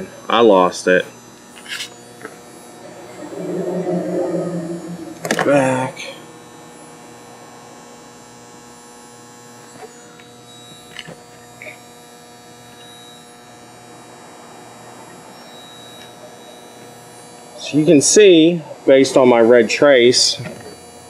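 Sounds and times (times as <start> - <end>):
steady low hum: 2.8 - 6.4.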